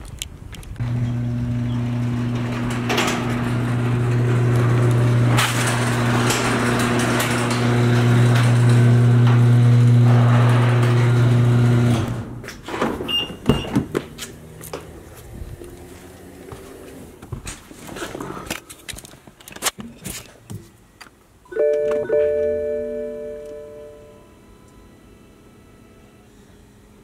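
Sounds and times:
garage door opener humming: 0:00.8 - 0:17.2.

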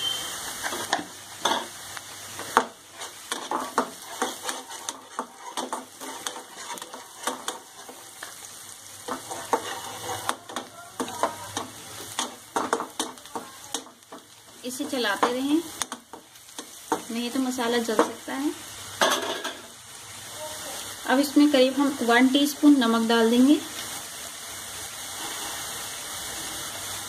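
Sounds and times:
onions sizzling in hot oil: 0:00.0 - 0:27.0
spatula scraping and tapping pan: 0:00.6 - 0:01.8, 0:02.4 - 0:18.3.

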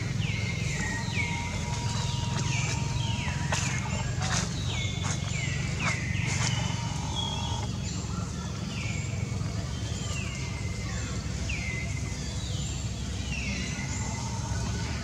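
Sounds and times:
steady low rumble: 0:00.0 - 0:09.9.

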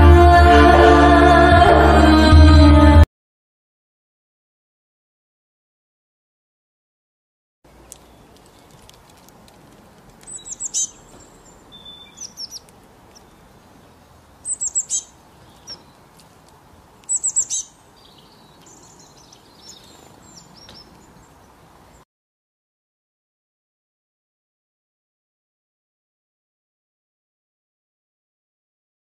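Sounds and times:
birds chirping softly: 0:07.7 - 0:22.1.

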